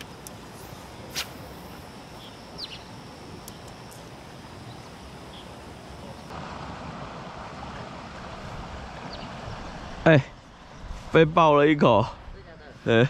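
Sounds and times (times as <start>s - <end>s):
faint ticks: 0.0s - 0.4s
steady outdoor background noise: 0.0s - 13.0s.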